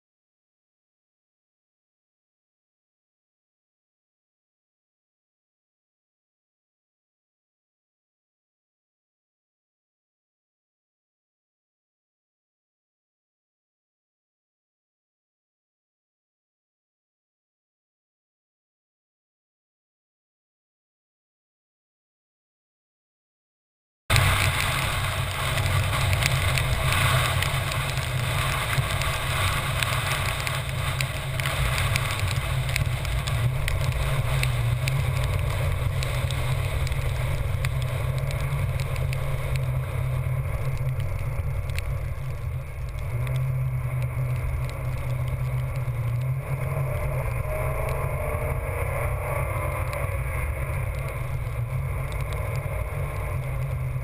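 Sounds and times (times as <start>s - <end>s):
wind buffeting microphone: 24.1s - 46.8s
vehicle rumble: 24.1s - 54.0s.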